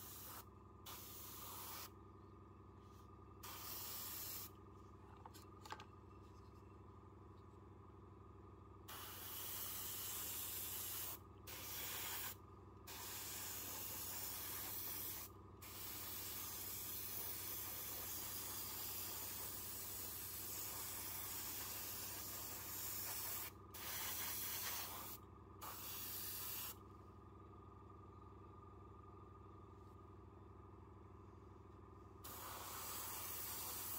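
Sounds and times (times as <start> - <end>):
airbrush spraying air hiss: 0.0 - 1.9, 3.4 - 4.5, 8.9 - 26.8, 32.2 - 33.9.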